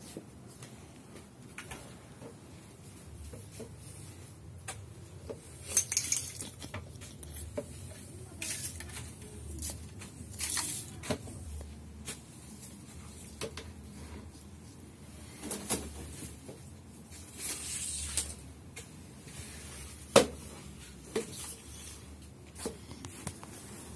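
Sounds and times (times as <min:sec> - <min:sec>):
broom sweeping tiled floor: 0:01.8 - 0:23.9
small objects knocking and clinking: 0:05.6 - 0:07.4.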